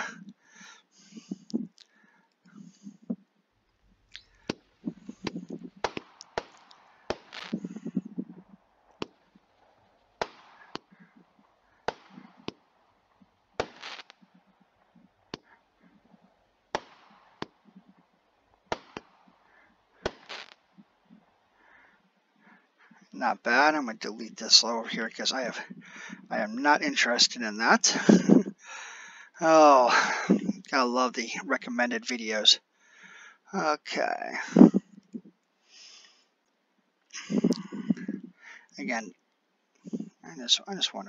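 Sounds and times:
low thuds: 1.1s - 1.8s, 2.5s - 19.4s
firework cracking shots: 4.2s - 20.9s.

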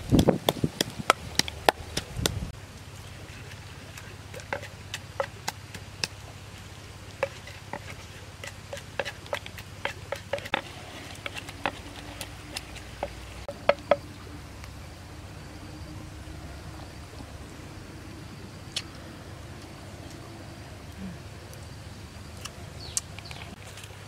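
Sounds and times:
pestle pounding in mortar: 4.4s - 6.1s, 7.2s - 14.0s.

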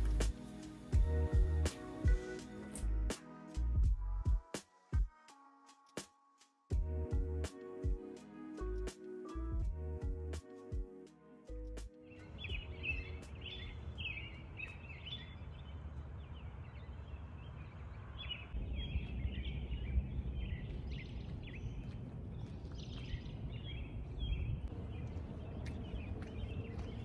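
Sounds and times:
birds chirping: 12.0s - 27.0s
low outdoor rumble: 15.4s - 27.0s.

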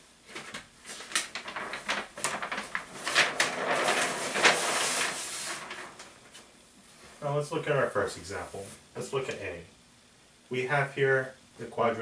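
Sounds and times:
paper sheet crackling and rustling: 0.2s - 6.5s.

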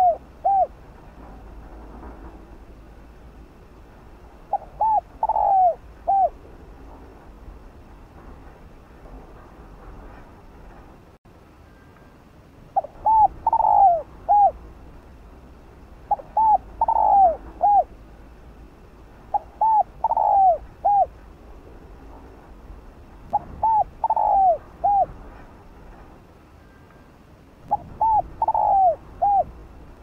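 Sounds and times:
dove cooing: 0.0s - 0.8s, 4.5s - 6.4s, 12.8s - 14.6s, 16.1s - 17.9s, 19.3s - 21.2s, 23.3s - 25.2s, 27.7s - 29.6s.

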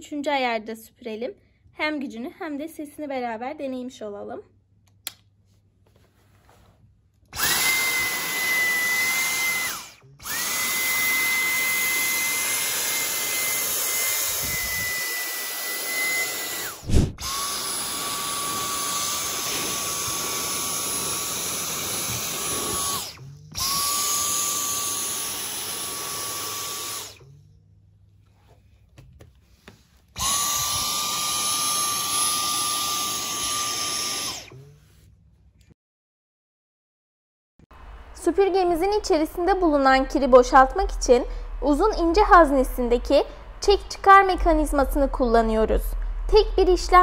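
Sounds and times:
vacuum cleaner whining: 7.3s - 27.6s, 29.7s - 34.9s.

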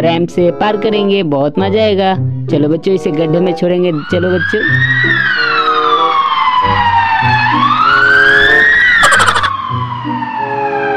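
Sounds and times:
background music: 0.0s - 10.9s
siren wailing: 3.9s - 10.9s.

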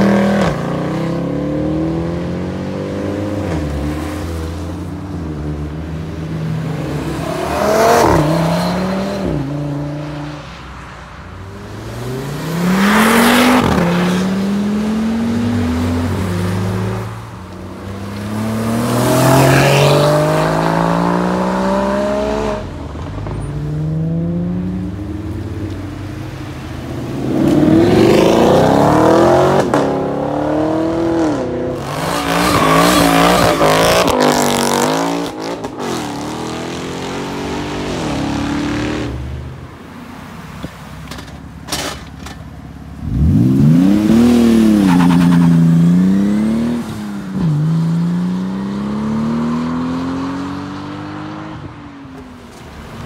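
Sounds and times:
sports cars accelerating hard: 17.8s - 25.1s.

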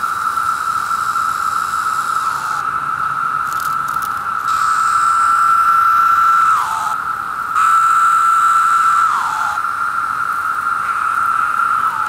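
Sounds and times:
cicada call sliding down: 0.0s - 12.0s
cicada chorus buzzing: 0.0s - 12.0s.

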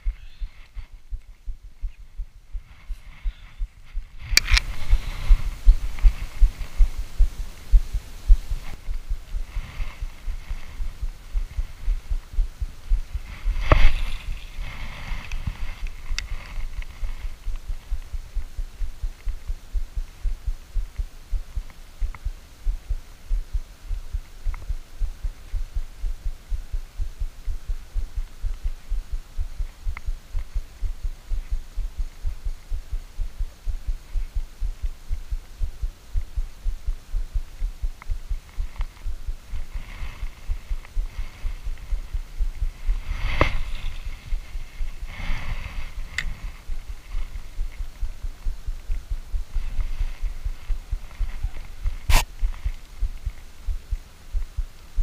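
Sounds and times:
rustling handling noise: 0.0s - 18.2s, 38.0s - 53.5s.

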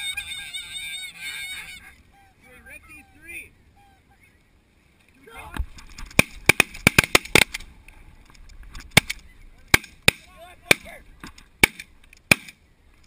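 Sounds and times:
geese honking: 0.0s - 4.4s.

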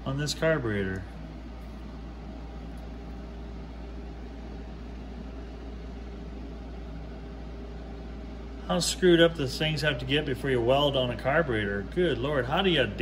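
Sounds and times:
room noise hum and hiss: 0.0s - 13.0s.

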